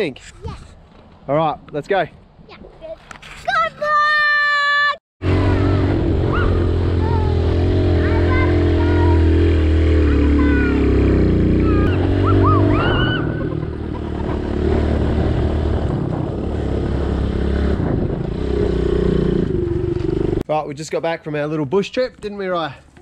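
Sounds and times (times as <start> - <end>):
dirt bike engine running: 5.2 - 20.4.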